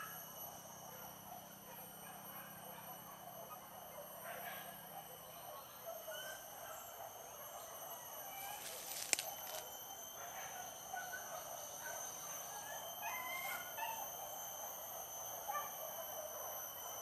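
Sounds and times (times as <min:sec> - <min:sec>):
high insect drone: 0:00.0 - 0:17.0
distant animal calls: 0:10.5 - 0:14.1.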